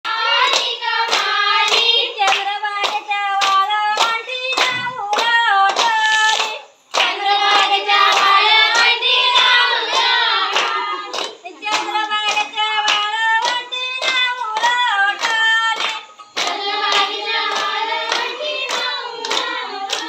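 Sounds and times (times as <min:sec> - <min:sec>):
rhythmic hand clapping: 0:00.0 - 0:20.0
group singing folk song: 0:00.1 - 0:20.0.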